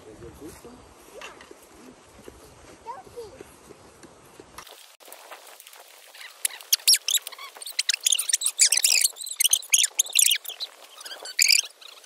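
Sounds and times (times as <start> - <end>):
small birds chirping: 5.7 - 12.0.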